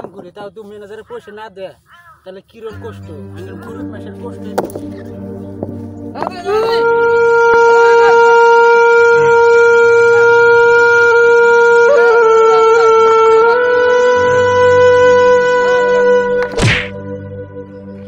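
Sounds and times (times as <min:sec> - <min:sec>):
loud horn-like note: 0:06.4 - 0:17.2.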